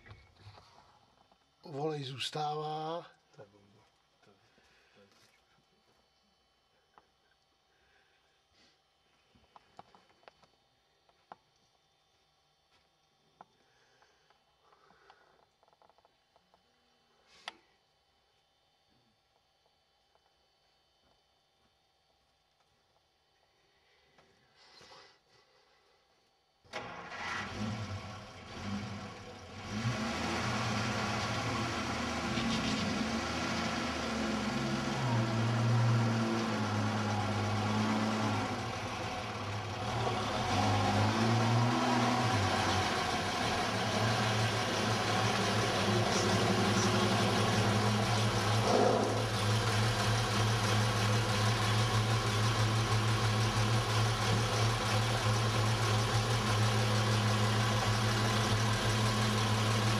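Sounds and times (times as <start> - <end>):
truck engine running: 28.0 - 59.9.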